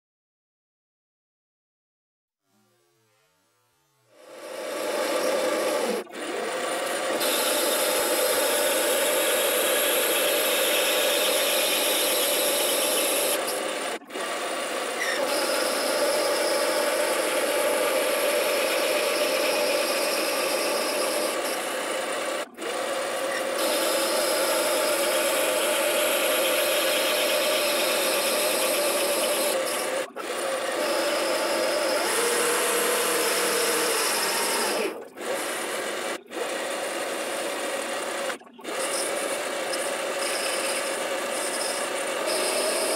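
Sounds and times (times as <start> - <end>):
metal lathe cutting: 4.2 - 42.9.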